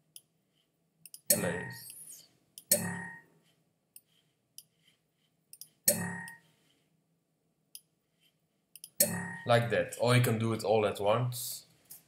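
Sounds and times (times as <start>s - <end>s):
computer mouse clicking: 5.5s - 6.4s, 8.8s - 9.2s.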